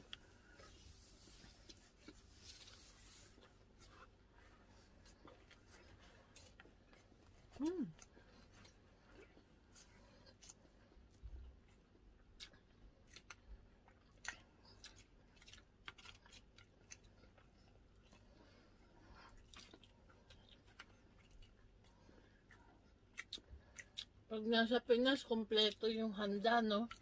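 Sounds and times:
chewing and mouth smacks: 3.4 - 24.3.

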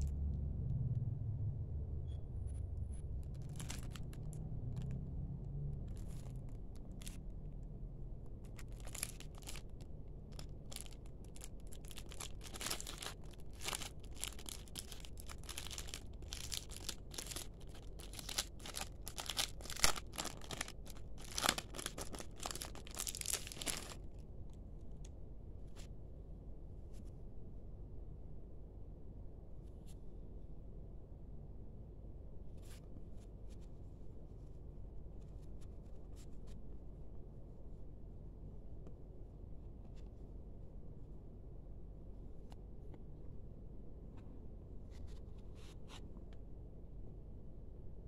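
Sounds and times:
plastic packaging crinkling and tearing: 3.2 - 5.0, 5.8 - 7.6, 8.4 - 24.2.

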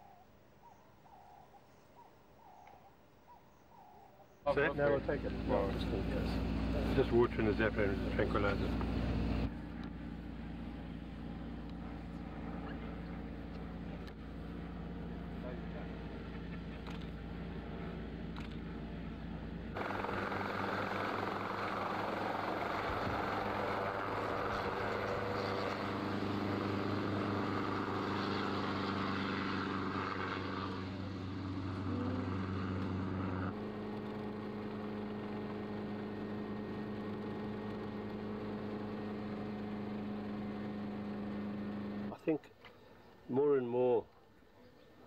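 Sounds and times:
engine running: 4.6 - 42.2.

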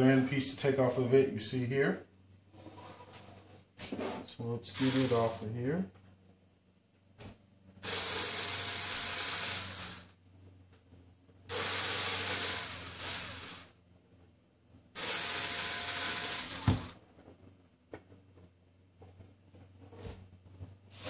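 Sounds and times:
handheld power tool running: 4.7 - 5.4, 7.8 - 10.2, 11.5 - 13.8, 15.0 - 17.0.

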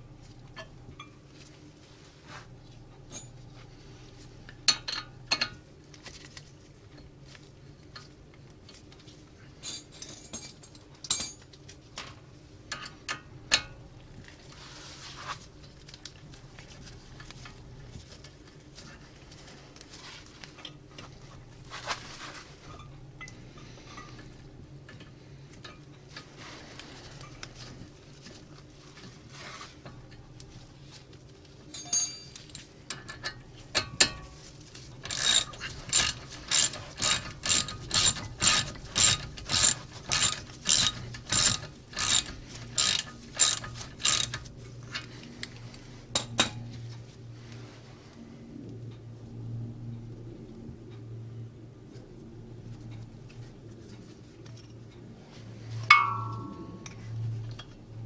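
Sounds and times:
metal clinks and scrapes: 3.1 - 3.8, 9.6 - 11.4, 31.7 - 45.1, 55.8 - 57.7.

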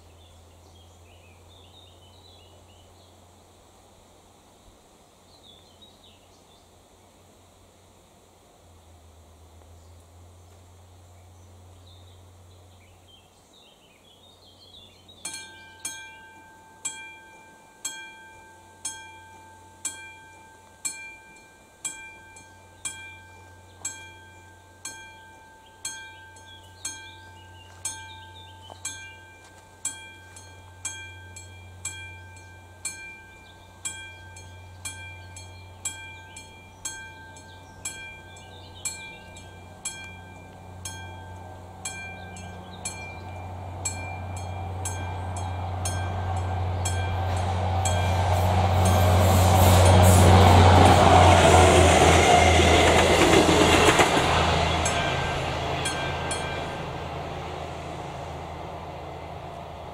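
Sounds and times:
level crossing bell ringing: 15.3 - 50.1, 54.8 - 57.0.

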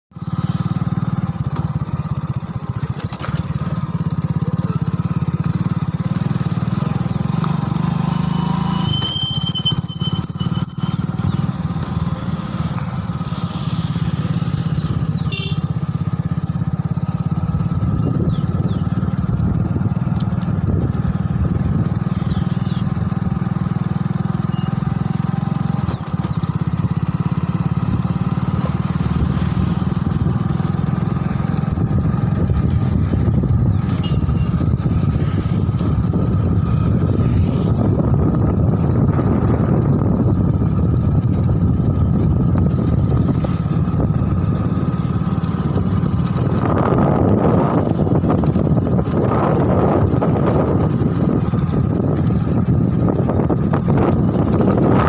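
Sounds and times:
vehicle engine running: 0.1 - 55.0
wind on microphone: 17.4 - 23.0, 27.9 - 44.8, 45.5 - 55.0.

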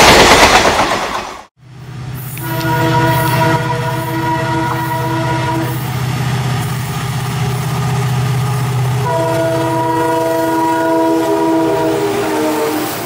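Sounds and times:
diesel locomotive engine drone: 0.0 - 13.0
multi-tone air horn blast: 2.2 - 5.9, 9.0 - 13.0.

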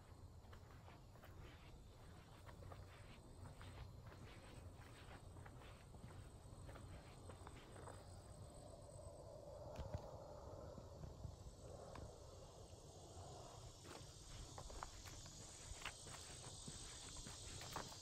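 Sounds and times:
footsteps crunching on dirt trail: 0.0 - 8.2, 13.7 - 18.0
high insect chorus: 0.0 - 18.0.

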